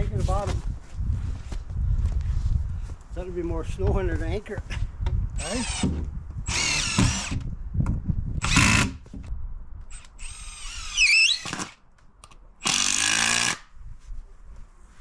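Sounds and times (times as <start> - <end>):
cordless drill running: 6.5 - 7.4, 9.9 - 11.8, 12.6 - 13.6.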